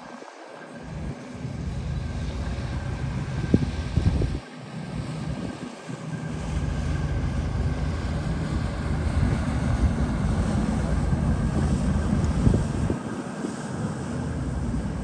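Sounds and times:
wind buffeting microphone: 0.0 - 15.0
boat engines rumbling: 0.5 - 15.0.

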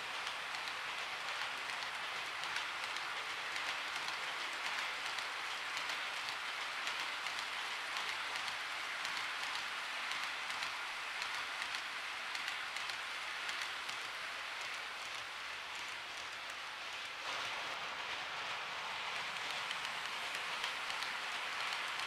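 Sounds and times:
model train wheels hissing on rail: 0.0 - 22.0.

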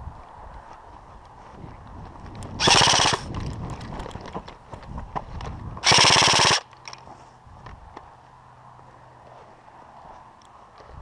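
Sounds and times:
airsoft rifle bursts: 2.6 - 3.3, 5.8 - 6.7.

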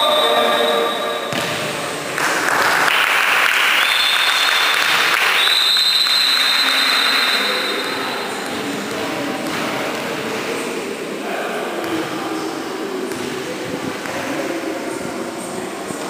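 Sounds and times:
applause in a hall: 2.1 - 7.9.

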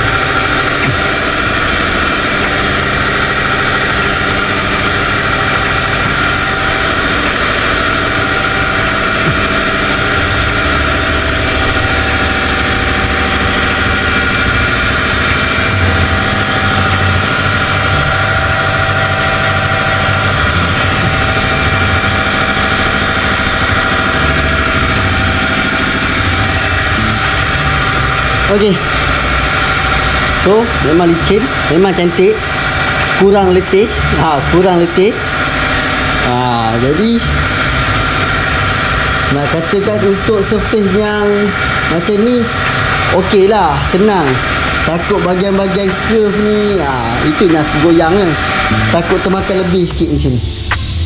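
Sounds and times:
sanding machine running: 0.0 - 51.0.

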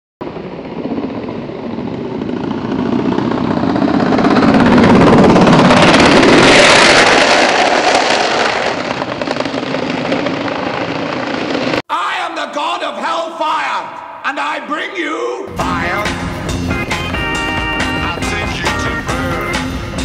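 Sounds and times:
longboard wheels rolling on asphalt: 0.2 - 11.8.

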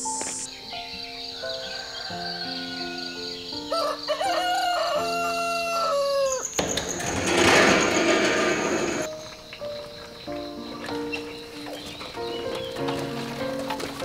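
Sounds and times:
rooster crowing: 1.3 - 6.6
instrumental background music: 9.1 - 14.0.

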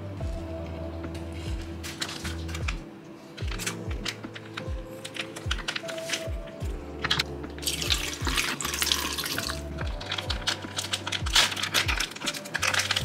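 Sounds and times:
scissors cutting plastic bag: 1.1 - 13.0
plastic bag crinkling: 1.2 - 13.0
liquid sloshing and splashing: 7.1 - 13.0.

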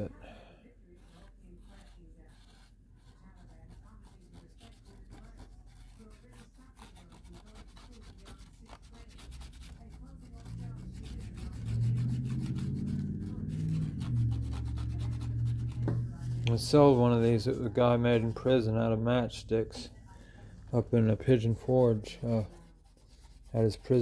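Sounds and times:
cotton swab scrubbing: 0.9 - 18.8, 20.7 - 24.0
low rumble: 10.2 - 21.2.

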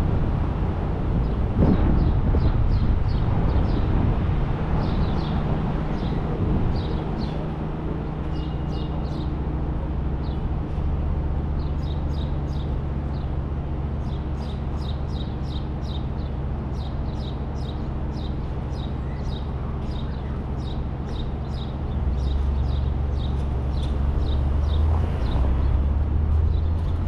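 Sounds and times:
car hum and road noise: 0.0 - 27.0
birds chirping: 4.7 - 10.8, 11.5 - 27.0.

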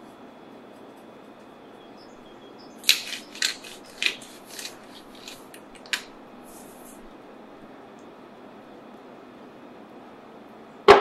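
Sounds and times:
spice grinder crunching: 2.8 - 7.1.

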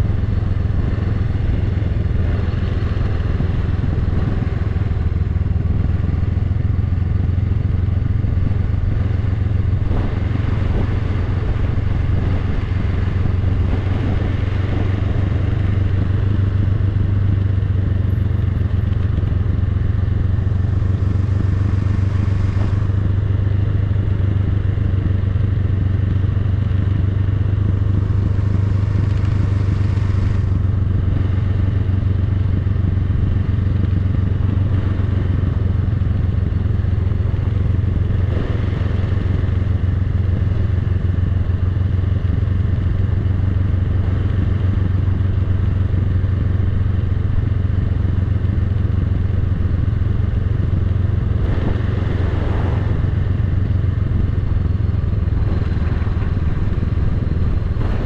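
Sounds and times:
motorcycle engine running steadily: 0.0 - 58.0.

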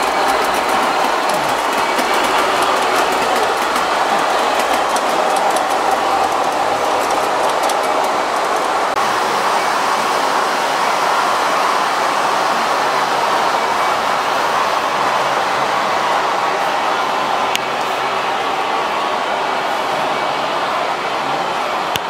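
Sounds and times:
clicking over rail joints: 0.0 - 9.0
model train wheels on rails: 0.0 - 22.0.

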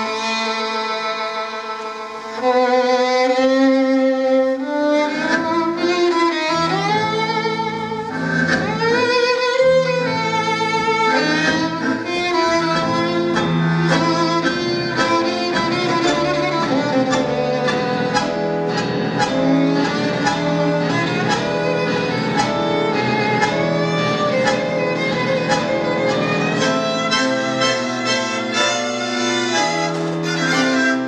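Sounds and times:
tango orchestra playing: 0.0 - 31.0
violin melody with vibrato: 0.0 - 31.0
bowed bass line: 9.8 - 31.0.

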